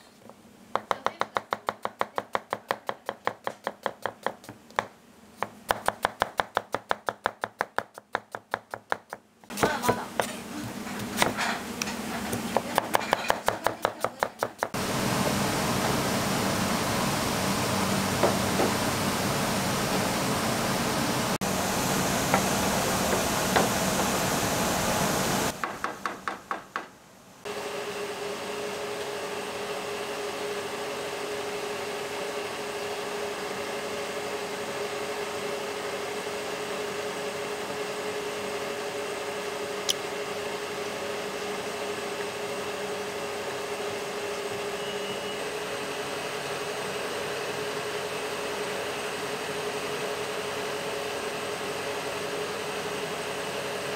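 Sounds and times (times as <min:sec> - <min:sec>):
kitchen fan humming: 0:09.5 - 0:26.6, 0:27.5 - 0:53.9
gas burner hissing: 0:14.8 - 0:25.6.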